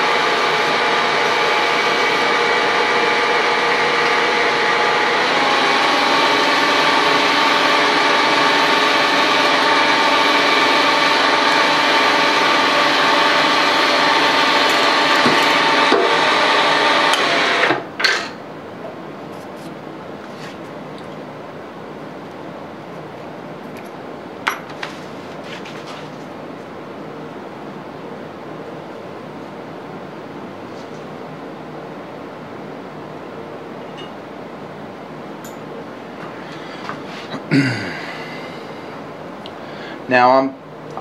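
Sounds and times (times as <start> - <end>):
milling machine drilling: 0.0 - 18.4.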